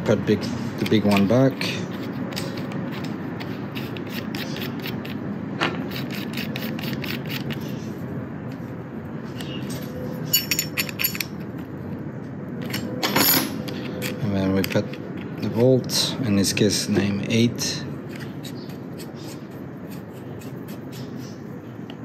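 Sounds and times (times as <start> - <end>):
metallic clicks and scraping: 0.8 - 5.2, 5.8 - 7.9, 9.3 - 11.8, 12.6 - 16.0
sharp metal clinks: 9.7 - 11.3.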